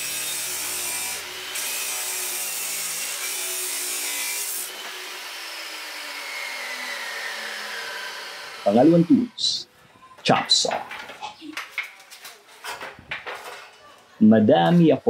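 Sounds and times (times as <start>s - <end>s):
chop saw cutting metal: 0.0s - 9.3s
saw motor winding down: 3.9s - 9.3s.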